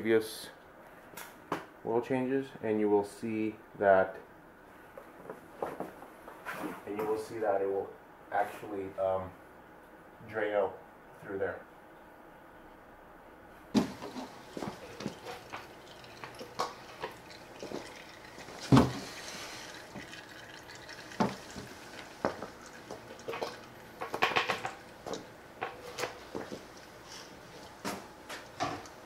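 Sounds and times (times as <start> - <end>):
oil dripping into drain pan: 13.8 - 29.0.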